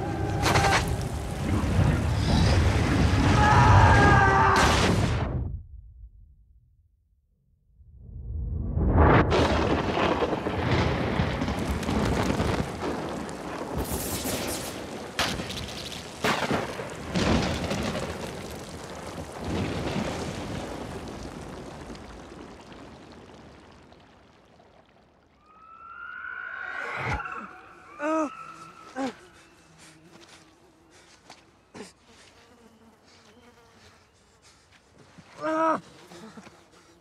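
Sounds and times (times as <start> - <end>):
heavy rain: 0.0 - 4.2, 9.3 - 25.1
thunder cracks and booms: 8.7 - 15.5, 16.2 - 24.0.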